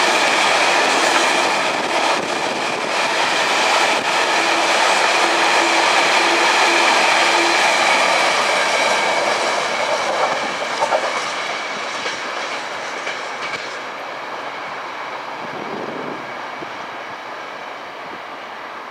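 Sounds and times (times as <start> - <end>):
train wheels clattering over rails: 0.0 - 14.0.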